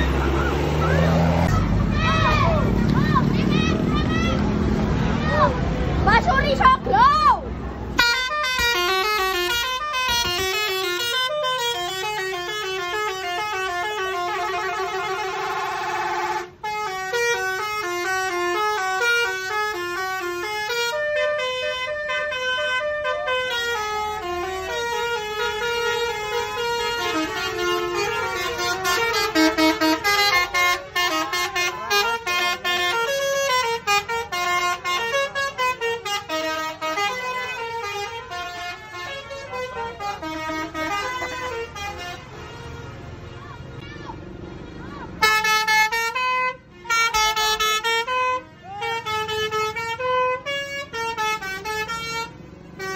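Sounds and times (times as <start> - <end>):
musical bus horns: 0.0 - 52.9.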